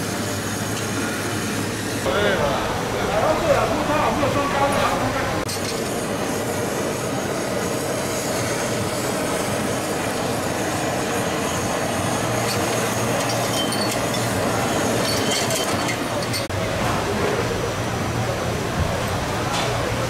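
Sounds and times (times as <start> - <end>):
gas blowtorch hissing: 0.0 - 16.5.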